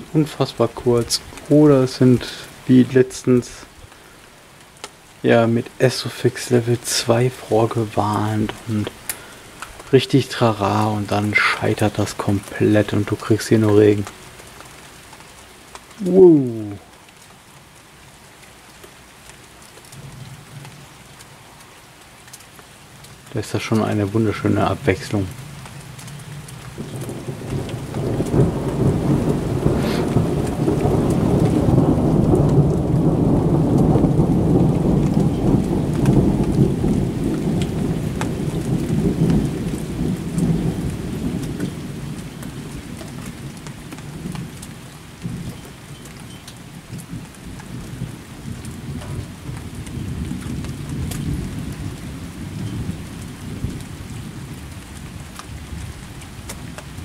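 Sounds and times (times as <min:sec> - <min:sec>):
rain pattering: 0:00.0 - 0:57.0
rolling thunder: 0:26.3 - 0:44.6, 0:46.7 - 0:57.0.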